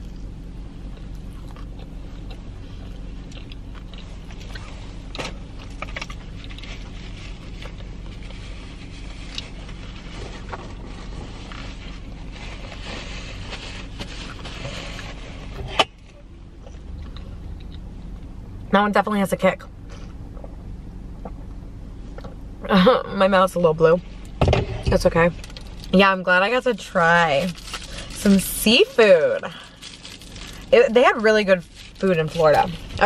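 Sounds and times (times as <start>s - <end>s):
chewing and crunching food: 0.0s - 12.9s, 16.6s - 18.3s, 27.4s - 33.0s
low hum inside a car: 0.0s - 33.0s.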